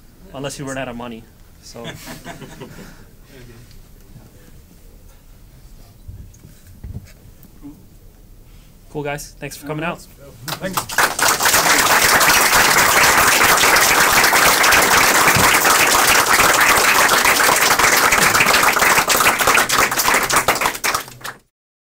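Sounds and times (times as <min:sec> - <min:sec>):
audience clapping: 0:10.4 - 0:21.5.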